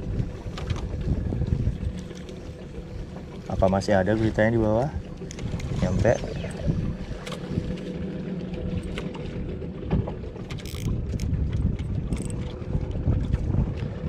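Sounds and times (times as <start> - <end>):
wind on microphone: 0.0 - 2.1, 3.5 - 14.0
boat engine running: 0.0 - 14.0
fishing tackle clicks and knocks: 10.0 - 12.6.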